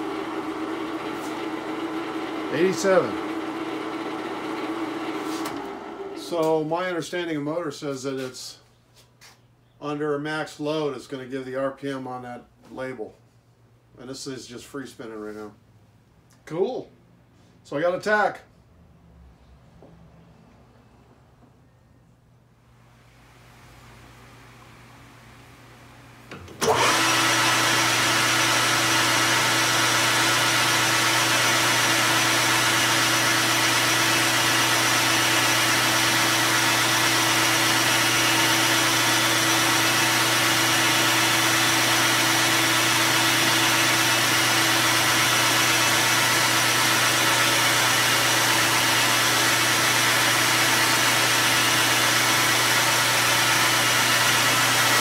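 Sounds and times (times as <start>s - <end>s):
metal lathe running: 26.6s - 55.0s.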